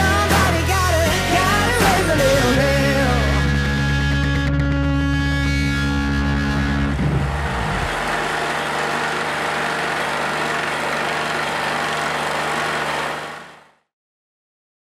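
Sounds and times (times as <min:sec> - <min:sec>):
stump grinder engine: 0:06.8 - 0:13.9.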